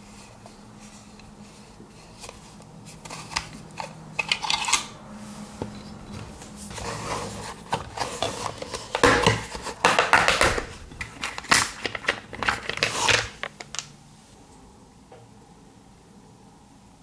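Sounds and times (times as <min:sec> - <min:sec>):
batteries clattering in plastic box: 0:07.9 - 0:13.9.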